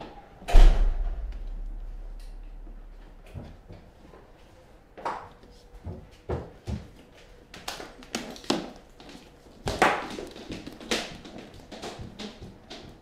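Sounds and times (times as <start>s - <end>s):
faint steady hum: 0.5s - 3.8s.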